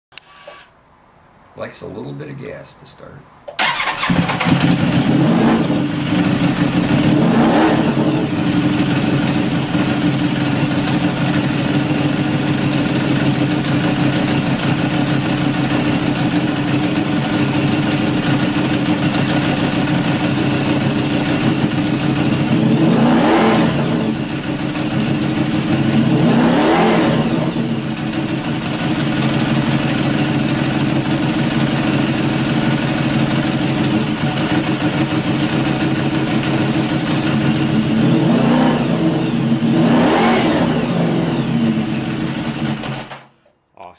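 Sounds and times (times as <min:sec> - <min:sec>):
engine throttle blips: 0:03.5 - 0:11.8
motorcycle engine idling: 0:03.6 - 0:22.8, 0:23.7 - 0:26.2, 0:27.4 - 0:38.2, 0:41.4 - 0:43.1.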